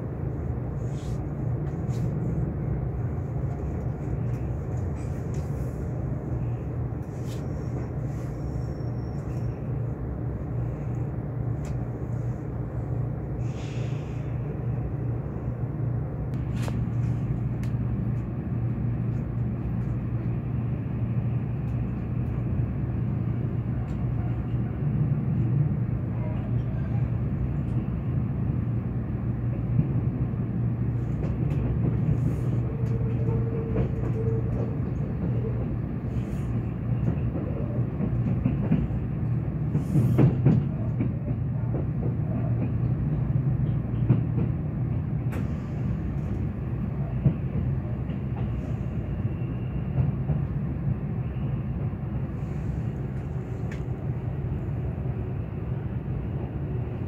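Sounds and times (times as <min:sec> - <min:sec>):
train wheels rumbling on rail: 0:00.0 - 0:57.0.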